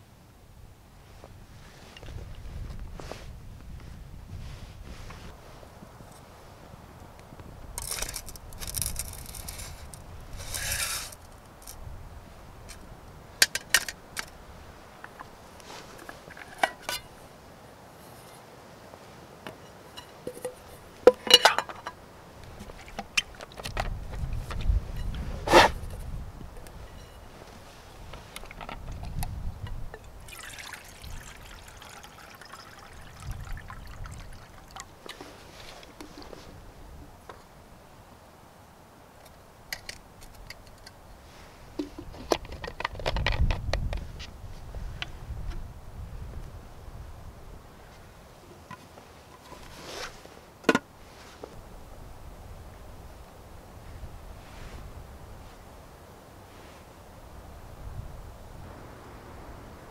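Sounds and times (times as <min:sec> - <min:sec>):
metal pots clinking: 0:20.0 - 0:22.0, 0:30.0 - 0:34.8.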